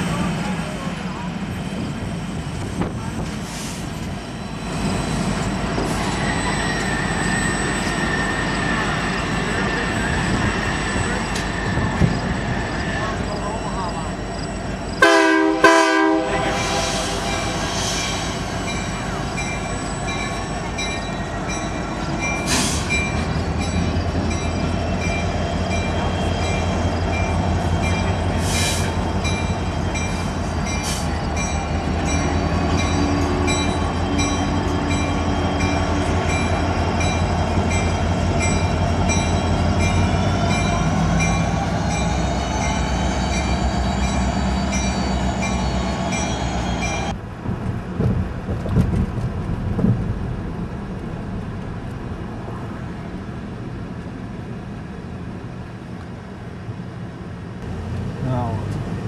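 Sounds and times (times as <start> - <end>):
locomotive engines rumbling: 0.0 - 59.0
train horn blast: 15.0 - 17.7.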